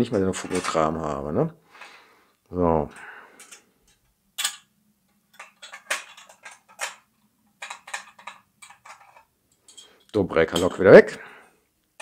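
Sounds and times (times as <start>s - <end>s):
small metal parts clicking: 2.9s - 4.7s, 5.3s - 10.8s.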